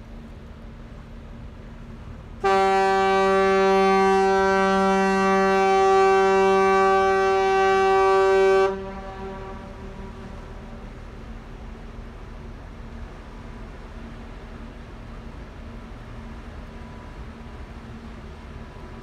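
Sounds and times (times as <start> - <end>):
low steady rumble: 0.0 - 19.0
ship horn long blast: 2.4 - 12.0.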